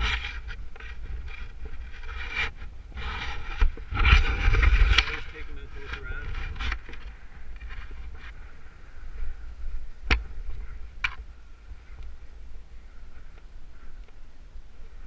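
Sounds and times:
low steady rumble: 0.0s - 15.0s
sharp clicks of climbing gear: 13.2s - 14.2s.

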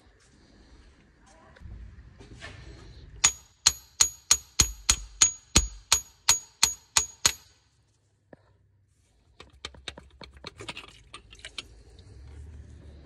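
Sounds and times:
ratchet wrench clicking: 3.2s - 7.5s.

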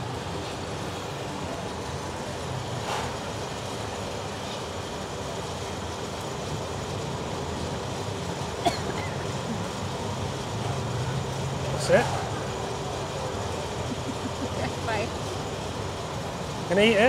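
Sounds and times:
brief hiss: 2.8s - 3.2s.

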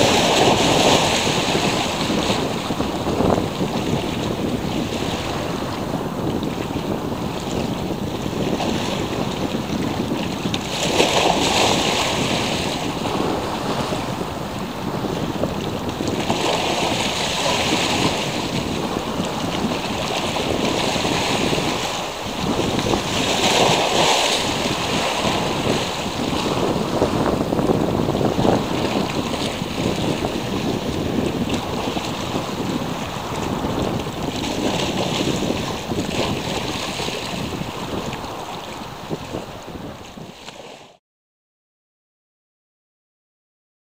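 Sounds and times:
sea waves washing in: 0.0s - 41.0s
wind buffeting microphone: 0.0s - 41.0s.

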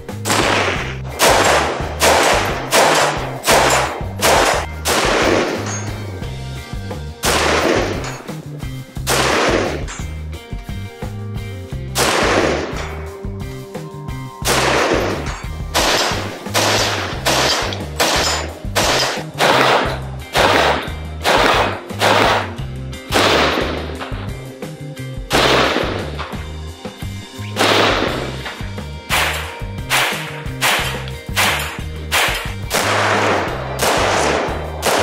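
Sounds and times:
background music with bass line: 0.0s - 35.0s
rifle shots with ring-out: 0.1s - 6.1s, 7.2s - 8.3s, 9.1s - 10.1s, 12.0s - 13.0s, 14.4s - 24.2s, 25.3s - 26.2s, 27.6s - 35.0s.

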